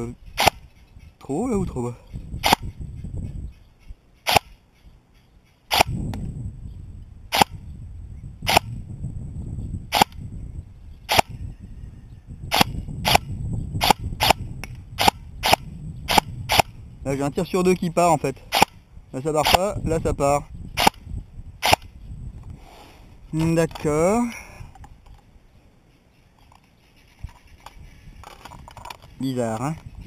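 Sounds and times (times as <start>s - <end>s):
airsoft gun shots: 4.3s - 4.5s, 5.7s - 6.0s.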